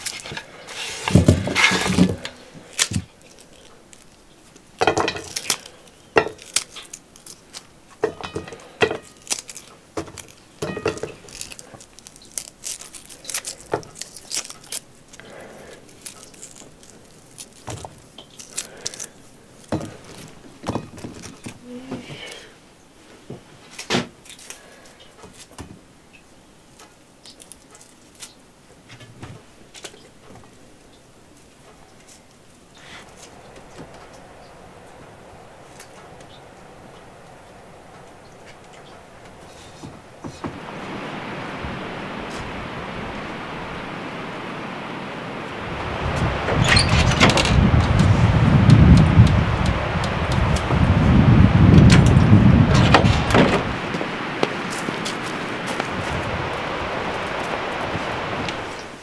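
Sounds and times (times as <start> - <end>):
onion rings snapping apart: 5.2 - 7.7, 11.1 - 19.2.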